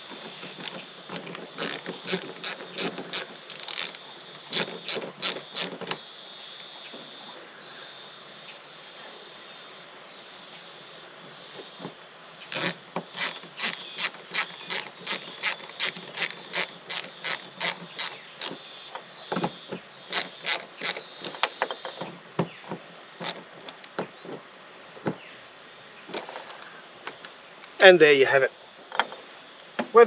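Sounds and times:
ratcheting screwdriver clicking: 1.6 - 6.0, 12.5 - 18.6.

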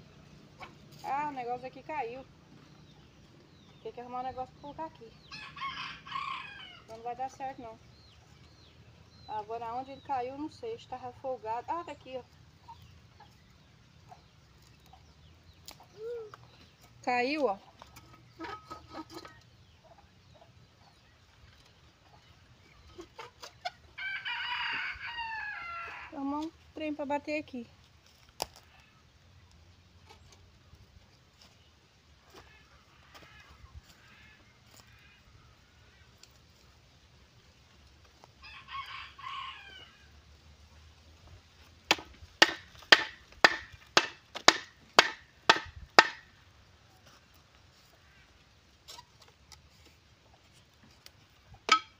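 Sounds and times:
rooster crowing: 5.3 - 6.9, 24.0 - 26.1, 38.4 - 40.1
sharp knocks: 41.9 - 46.2, 51.7 - 51.9.

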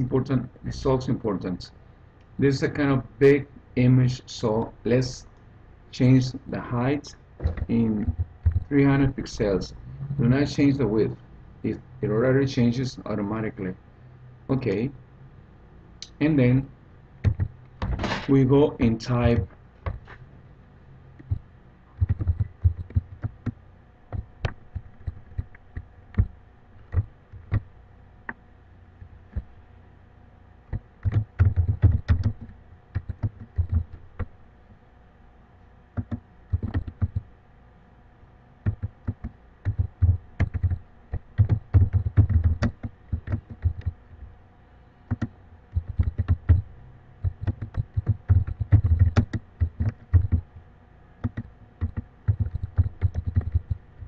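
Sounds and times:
computer keyboard typing: 7.6 - 8.7, 17.2 - 17.5, 21.2 - 21.4, 22.0 - 26.3, 26.9 - 27.6, 30.7 - 34.3, 36.0 - 37.3, 38.6 - 44.0, 45.1 - 50.5, 51.2 - 53.8.

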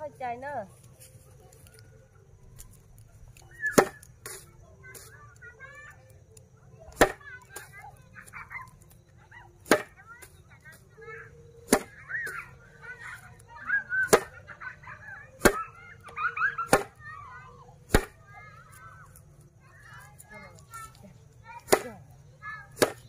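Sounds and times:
grass stalks whacking wooden board: 2.6 - 5.2, 6.9 - 9.0, 9.6 - 10.7, 11.6 - 13.2, 14.0 - 14.4, 15.4 - 17.1, 17.9 - 19.3, 20.8 - 23.0.

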